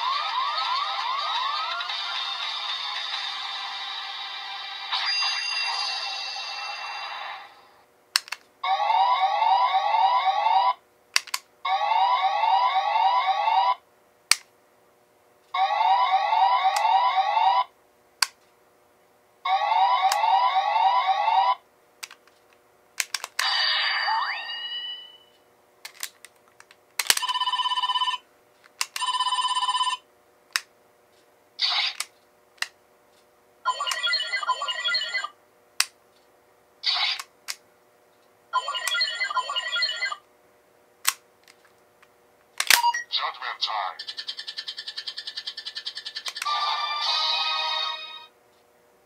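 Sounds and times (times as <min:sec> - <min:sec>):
toy police siren: 0:00.0 - 0:02.6, 0:08.6 - 0:10.8, 0:11.7 - 0:13.8, 0:15.6 - 0:17.7, 0:19.5 - 0:21.6, 0:33.7 - 0:35.3, 0:38.6 - 0:40.2
toy phone-style ringing: 0:05.0 - 0:07.1, 0:27.1 - 0:28.2, 0:28.9 - 0:30.0, 0:33.7 - 0:35.3, 0:38.6 - 0:40.2
plastic clicks of toy hinge: 0:08.2 - 0:08.4, 0:11.2 - 0:11.4, 0:22.0 - 0:22.3, 0:23.0 - 0:23.4
toy switch click: 0:11.2 - 0:11.4.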